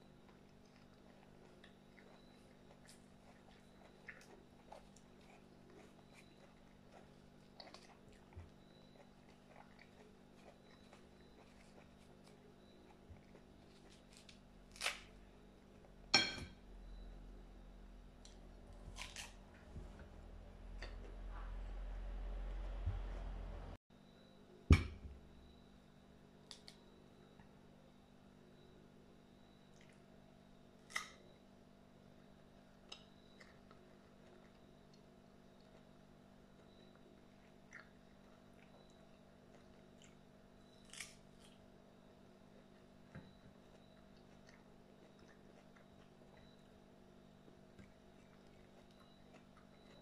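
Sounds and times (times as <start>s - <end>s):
faint handling and eating noises: 0.0s - 23.8s, 24.5s - 50.0s
steady low hum: 0.0s - 50.0s
knife clinking on ceramic plate: 16.2s - 16.6s.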